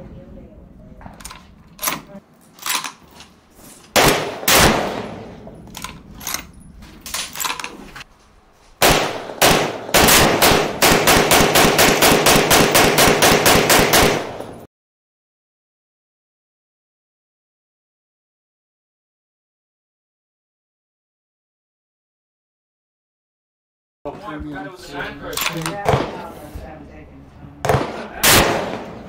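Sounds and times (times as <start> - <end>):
rifle gunshots: 4.0 - 6.0, 8.8 - 14.6, 25.5 - 26.3, 27.6 - 29.0.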